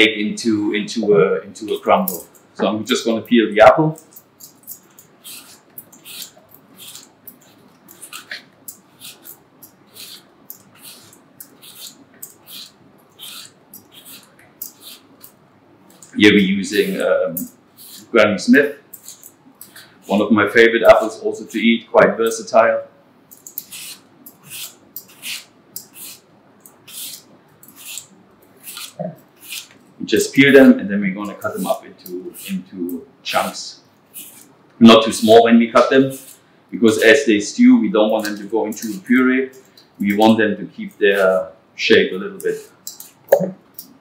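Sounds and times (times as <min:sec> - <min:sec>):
peeler scraping apple skin: 0:03.9 - 0:18.1, 0:18.9 - 0:21.2, 0:23.3 - 0:33.5, 0:34.1 - 0:37.3, 0:38.0 - 0:41.5, 0:42.3 - 0:44.0.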